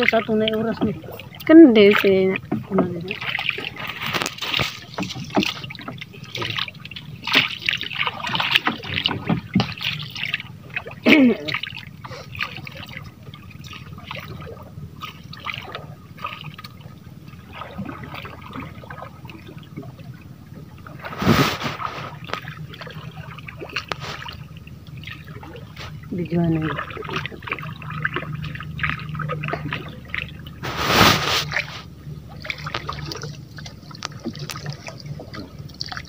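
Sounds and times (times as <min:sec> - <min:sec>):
water splashing against boat: 0:00.0 - 0:36.0.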